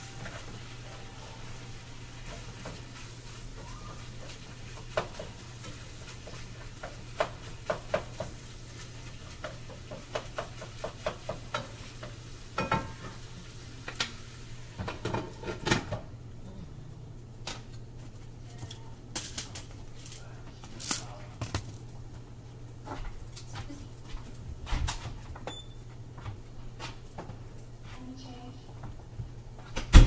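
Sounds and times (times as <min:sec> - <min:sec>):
meat sizzling in a frying pan: 0:00.0 - 0:15.1.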